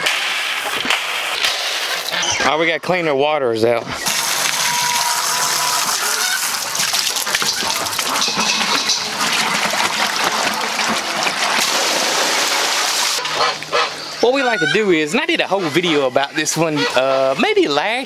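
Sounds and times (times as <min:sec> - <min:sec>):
water spraying from garden hose: 0:04.0 - 0:13.3
water running into plastic bucket: 0:04.0 - 0:13.8.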